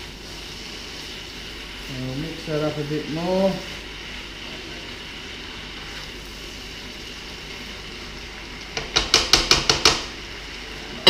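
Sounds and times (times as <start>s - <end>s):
food sizzling in a wok: 0.0s - 11.0s
utensil clacking against wok: 8.7s - 10.2s.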